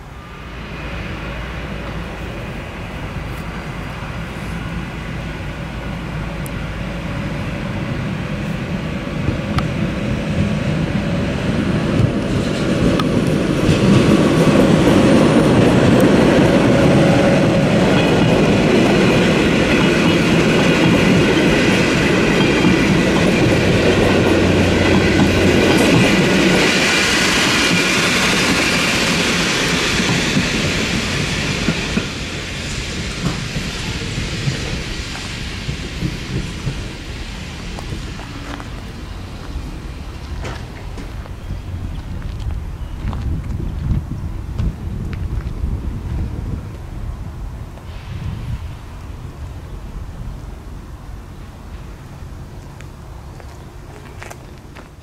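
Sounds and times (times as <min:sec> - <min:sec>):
passenger train passing: 0:00.0 - 0:55.0
wheels clicking over rail joints: 0:03.0 - 0:46.9.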